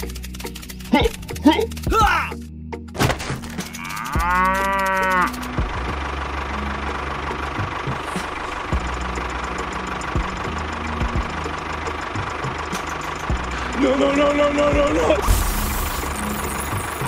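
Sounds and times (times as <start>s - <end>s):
tractor engine running: 0.0s - 2.5s, 3.1s - 17.0s
cow mooing: 3.7s - 5.4s.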